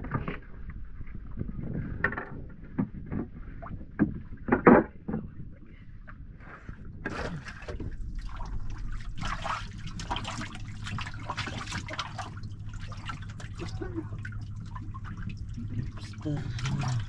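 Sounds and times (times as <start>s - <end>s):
low steady hum: 0.0s - 17.0s
water pouring and splashing: 7.0s - 17.0s.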